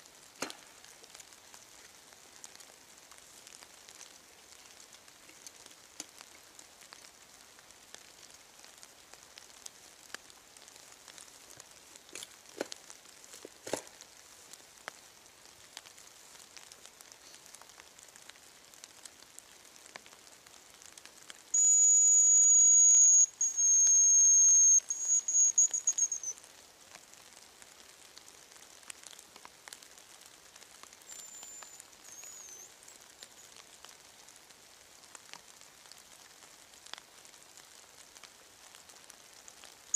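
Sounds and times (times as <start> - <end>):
high whistle lure calls: 21.6 - 26.4, 31.1 - 33.4.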